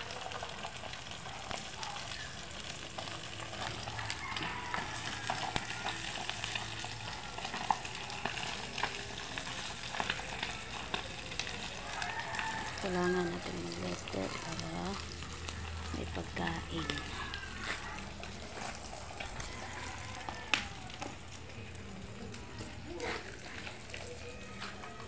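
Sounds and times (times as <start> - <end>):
fish sizzling in hot oil: 0.0 - 25.0.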